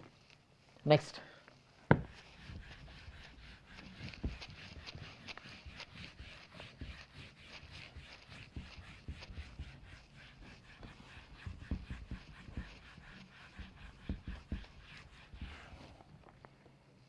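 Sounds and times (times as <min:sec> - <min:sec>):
duster rubbing on whiteboard: 0:01.9 - 0:16.2.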